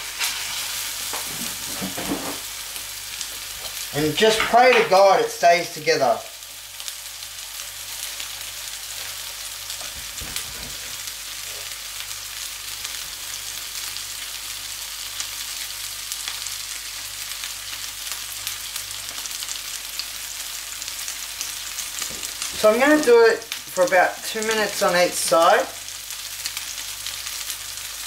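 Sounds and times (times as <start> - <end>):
burger patty sizzling in oil: 0.0 - 28.0.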